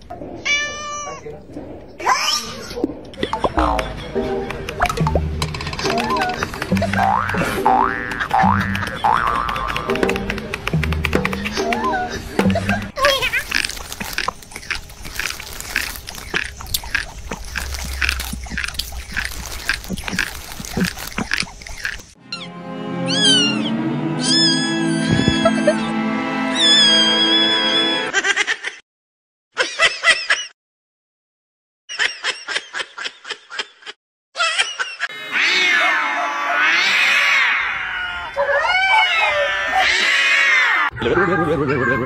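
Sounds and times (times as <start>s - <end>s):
high-pitched laughter: 11.4s - 13.4s, 24.9s - 25.9s, 28.0s - 28.8s, 29.6s - 30.5s, 31.9s - 35.9s
potato chips crunching: 13.0s - 22.2s.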